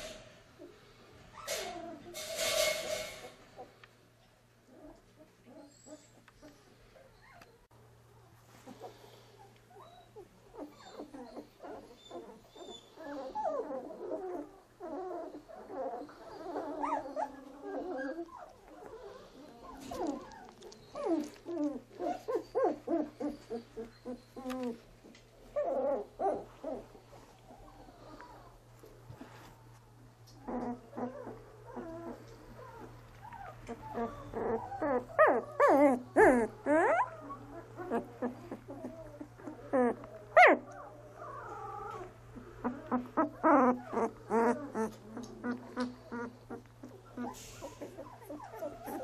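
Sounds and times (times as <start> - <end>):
puppies crying: 9.7 - 28.6, 30.3 - 49.0.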